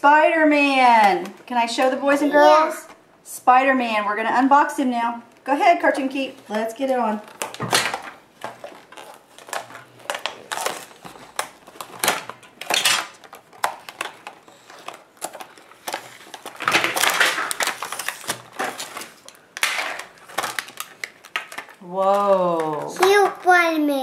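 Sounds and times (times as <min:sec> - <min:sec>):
plastic packaging crinkling: 0:06.4 - 0:24.0
cardboard tearing: 0:07.3 - 0:21.7.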